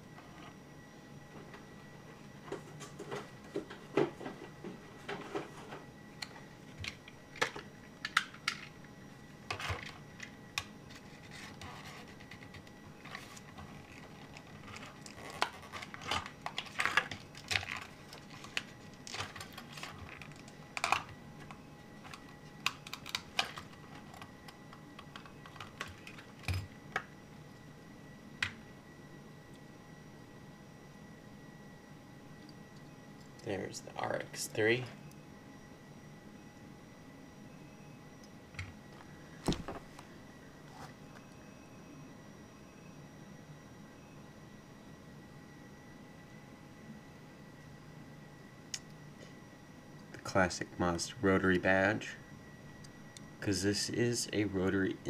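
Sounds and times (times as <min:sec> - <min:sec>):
plastic packaging crackling: 0:13.1 - 0:21.0.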